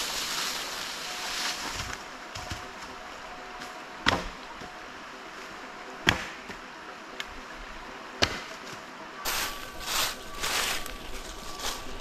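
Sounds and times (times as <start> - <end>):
dry leaves rustling: 0.0 - 3.8, 8.6 - 12.0.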